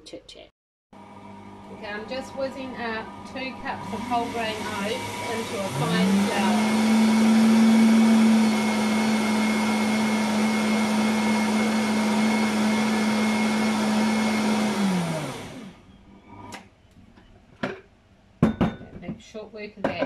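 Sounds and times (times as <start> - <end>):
blender motor grinding: 1.0 - 16.6.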